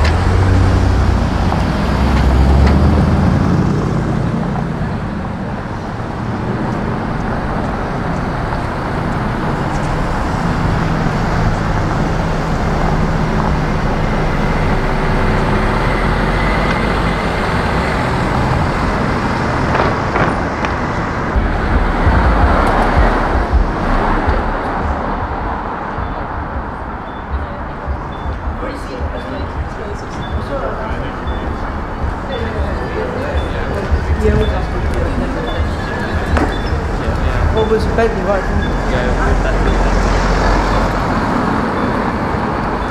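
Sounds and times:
car engine driving away: 0:00.0 - 0:28.6
low rumble: 0:00.0 - 0:42.9
street traffic: 0:00.0 - 0:42.9.

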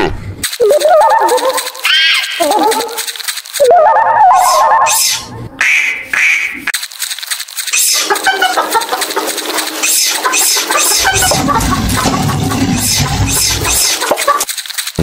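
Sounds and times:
quick clattering: 0:02.8 - 0:03.7, 0:06.7 - 0:15.0.

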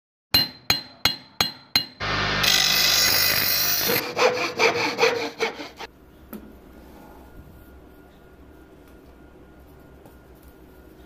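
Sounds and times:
sharp ringing knocks: 0:00.3 - 0:02.0
harsh machine noise: 0:02.0 - 0:05.2
saw strokes: 0:02.0 - 0:05.9.

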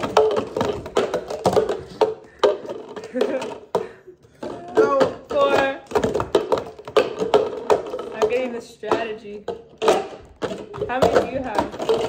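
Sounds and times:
plastic cups clacking on table: 0:00.0 - 0:12.0
person speaking: 0:04.4 - 0:06.0, 0:08.1 - 0:11.9.

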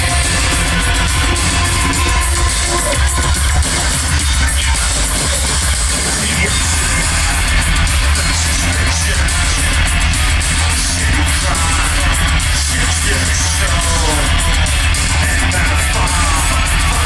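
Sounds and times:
heavy bass: 0:00.0 - 0:17.0
live electro-industrial music: 0:00.0 - 0:17.0
shouted vocals: 0:00.0 - 0:17.0.

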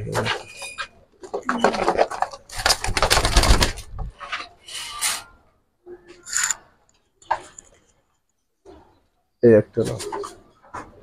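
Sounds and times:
pigeon wings fluttering against wire: 0:01.6 - 0:03.9.

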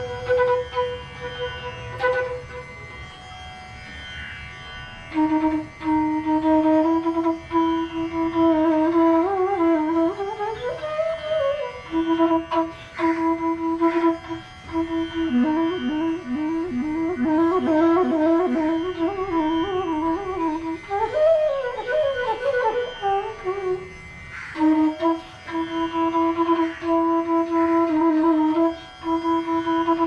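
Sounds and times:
bamboo flute playing: 0:00.0 - 0:04.0, 0:04.6 - 0:30.0.

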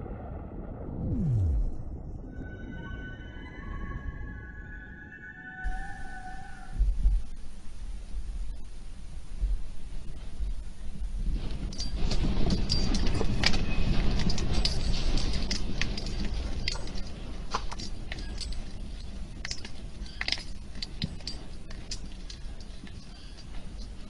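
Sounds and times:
low rumble: 0:00.0 - 0:04.3.

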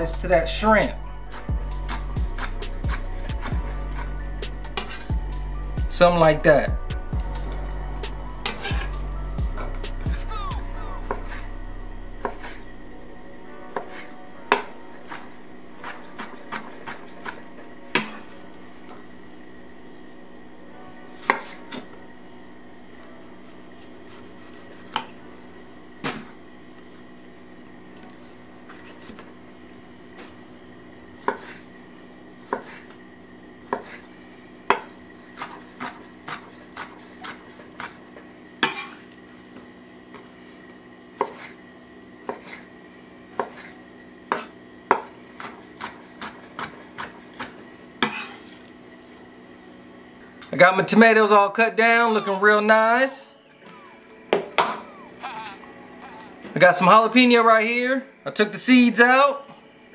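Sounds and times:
faint hum: 0:00.0 - 0:59.9
knife chopping on wooden board: 0:15.8 - 0:17.4, 0:31.2 - 0:31.6, 0:32.5 - 0:32.9, 0:33.7 - 0:34.1, 0:34.7 - 0:38.0, 0:41.2 - 0:41.6, 0:42.2 - 0:42.7, 0:43.3 - 0:48.4.

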